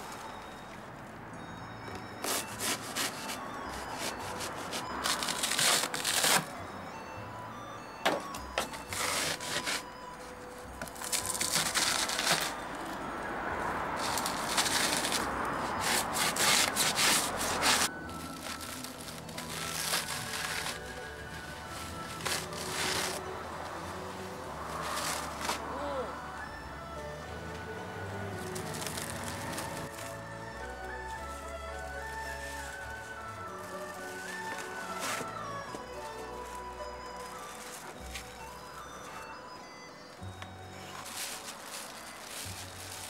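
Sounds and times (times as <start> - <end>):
background music: 0.0 - 43.0
polystyrene foam crunching and snapping: 2.2 - 6.5, 8.6 - 9.9, 10.8 - 12.7, 14.0 - 23.4, 24.7 - 25.7, 28.4 - 39.4, 40.4 - 43.0.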